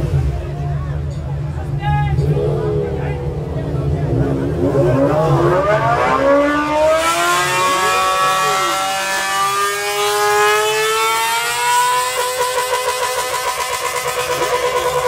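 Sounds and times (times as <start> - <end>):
low rumble: 0.0 - 6.6
rising siren-like tone: 2.0 - 13.5.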